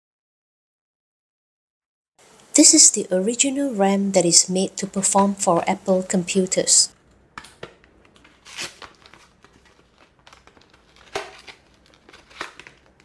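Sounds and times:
plastic tray crinkling: 7.4 - 13.0.

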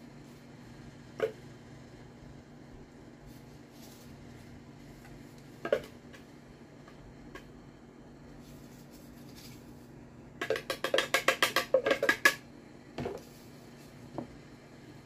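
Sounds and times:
spatula tapping plastic cup: 10.4 - 12.4.

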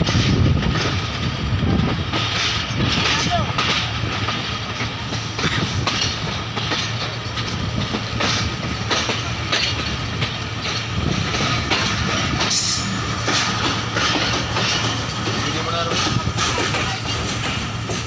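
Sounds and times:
train running gear rumble: 0.0 - 18.0
wheel clicks over rail joints: 2.1 - 18.0.

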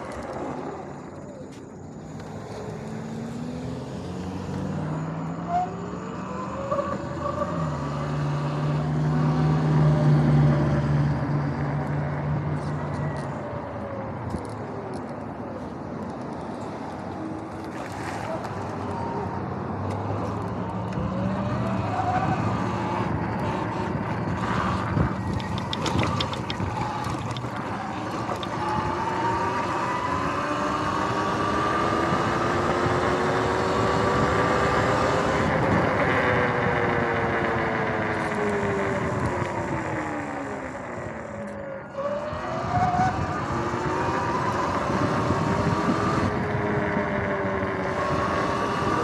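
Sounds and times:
wind: 0.0 - 49.0
tyre noise: 19.8 - 33.7.

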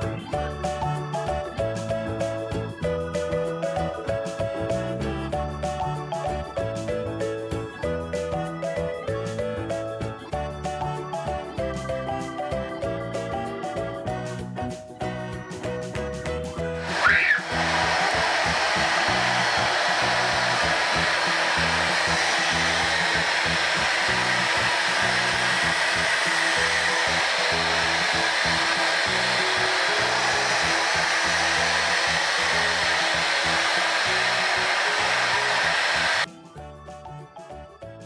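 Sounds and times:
light background music: 0.0 - 38.0
vacuum cleaner on carpet: 16.6 - 36.3.

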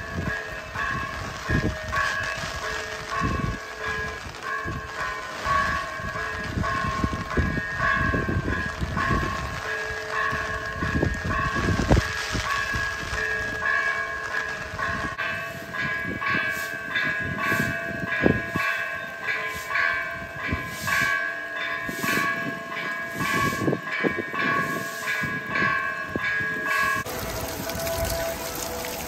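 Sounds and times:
heavy rain pouring: 0.0 - 15.1, 26.6 - 29.0.

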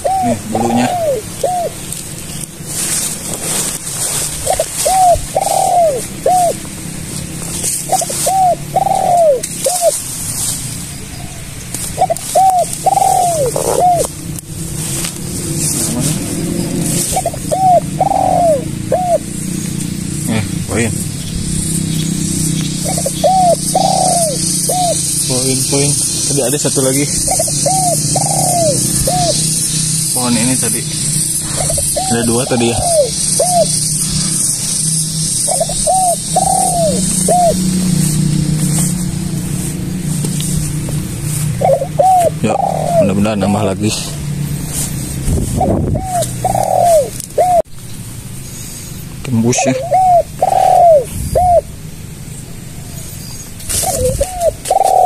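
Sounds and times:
steady high hiss: 0.0 - 41.6
dove cooing: 0.0 - 47.7, 49.5 - 55.0.

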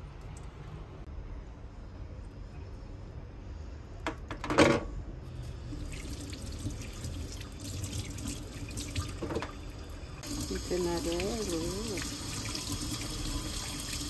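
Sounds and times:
tap water running into sink: 5.7 - 14.0.

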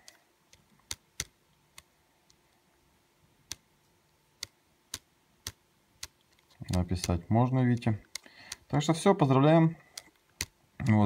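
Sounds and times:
mouse buttons clicking: 0.0 - 2.4, 3.4 - 3.6, 4.4 - 8.8, 9.9 - 10.6.

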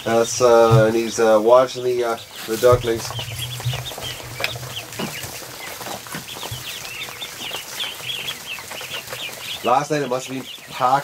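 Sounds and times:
ducklings peeping: 0.0 - 11.0
faint knocks: 2.5 - 6.8.

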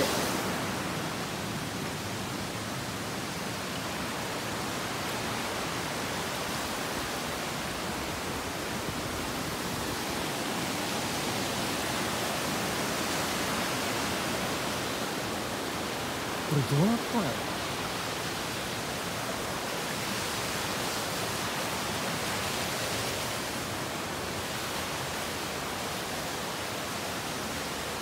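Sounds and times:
mountain stream over rocks: 0.0 - 28.0.

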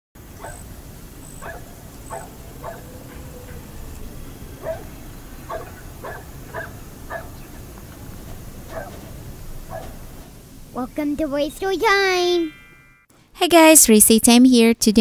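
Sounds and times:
dogs barking and yipping: 0.2 - 10.3.

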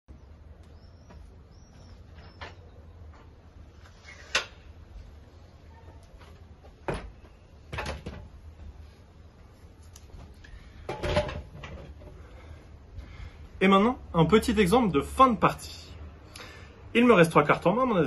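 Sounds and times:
faint high bird chirps: 0.1 - 3.0.

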